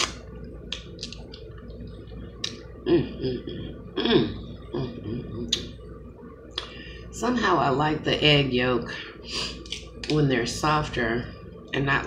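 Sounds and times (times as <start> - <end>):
person humming: 2.8 - 5.6.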